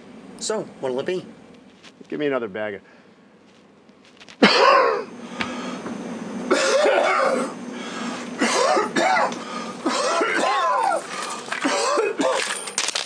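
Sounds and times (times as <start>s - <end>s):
man coughing: 4.4s - 5.1s, 6.5s - 7.6s, 8.4s - 12.6s
strained breaths: 5.2s - 6.0s, 7.6s - 8.5s, 9.2s - 11.7s.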